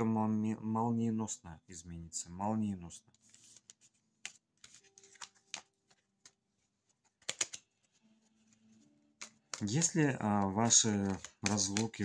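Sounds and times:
cards tapping and sliding: 3.2 - 12.0
sharp card clicks: 7.1 - 7.7, 9.1 - 12.0.

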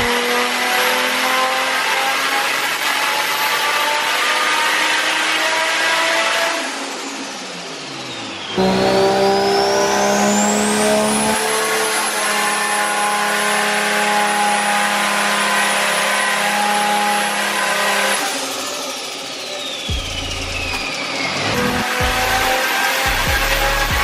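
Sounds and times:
high turbo whine: 0.0 - 24.0
car engine under load: 8.6 - 18.6.

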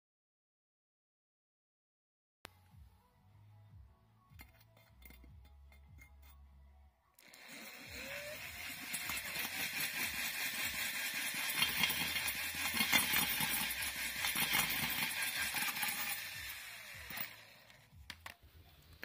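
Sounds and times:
drill spinning: 7.2 - 18.3.

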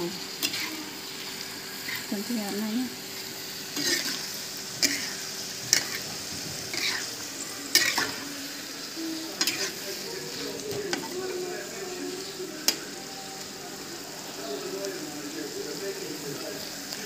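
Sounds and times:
frying sizzle: 0.0 - 17.0
metal spoon scraping a wok: 3.7 - 6.0, 6.7 - 7.1, 7.7 - 8.2, 9.4 - 9.8.

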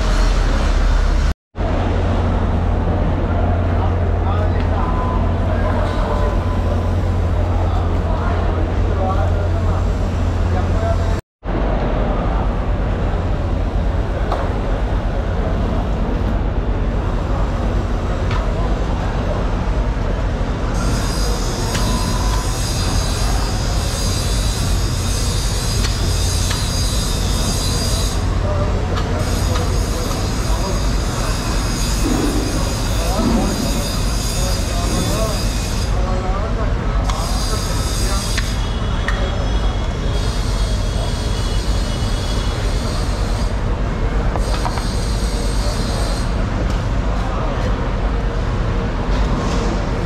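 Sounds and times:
loud rumbling background noise: 0.0 - 50.0.

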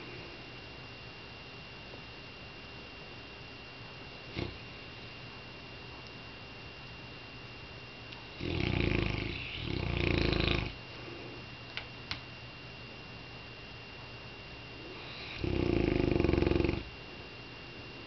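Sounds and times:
dog snoring: 4.3 - 4.7, 8.3 - 10.8, 14.9 - 16.9.

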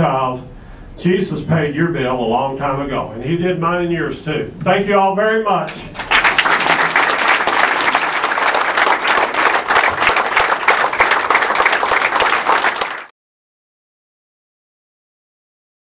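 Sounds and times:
crowd applauding: 5.9 - 13.1.

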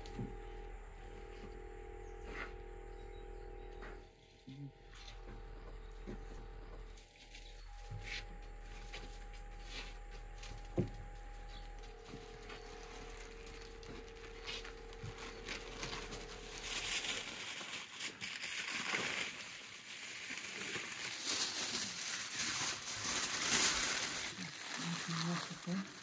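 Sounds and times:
aluminium foil crinkling: 7.0 - 26.0.

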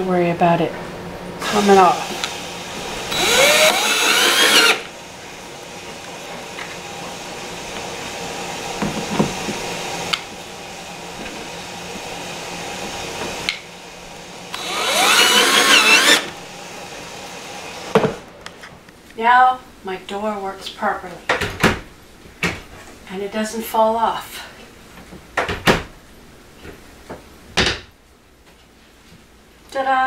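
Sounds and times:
power drill driving screws: 3.1 - 4.9, 14.5 - 16.4.

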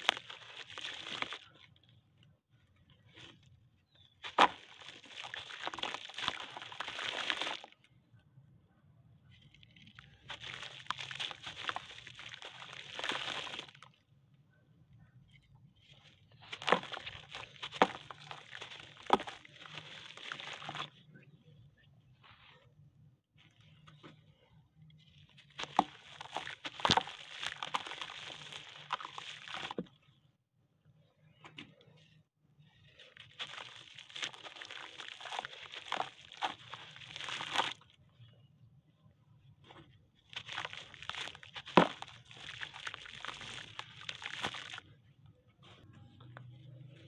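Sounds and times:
dirt crumbling into water: 0.0 - 1.8, 4.0 - 7.8, 9.4 - 14.0, 15.8 - 21.0, 25.0 - 30.0, 32.8 - 37.9, 39.8 - 44.9.

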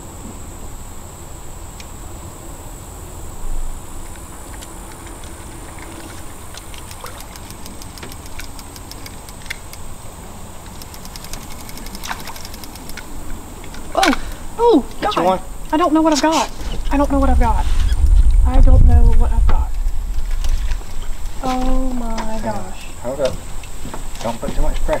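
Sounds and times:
insect drone: 0.0 - 25.0
low rumble: 16.8 - 23.0.

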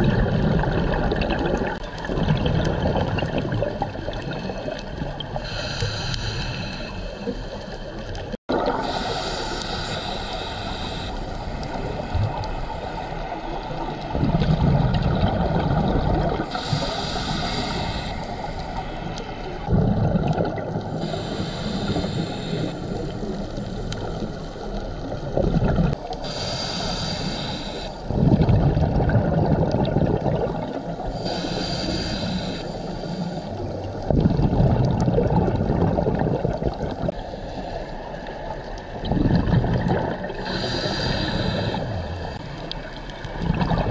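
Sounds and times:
exhaled bubbles rumbling: 0.0 - 5.7, 7.2 - 9.3, 11.4 - 17.9, 19.0 - 26.2, 28.0 - 31.3, 33.6 - 37.2, 38.2 - 43.9
regulator inhale hiss: 5.4 - 8.2, 8.8 - 13.8, 16.5 - 19.6, 21.0 - 24.8, 26.1 - 28.1, 30.7 - 33.8, 37.1 - 38.3, 40.4 - 42.7.

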